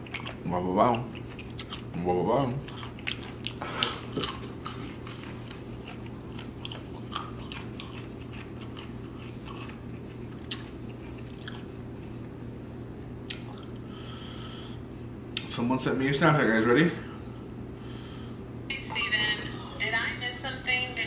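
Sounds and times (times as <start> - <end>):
person chewing chicken wings: 0.0 - 12.1, 13.3 - 13.9
steady low hum: 0.0 - 21.0.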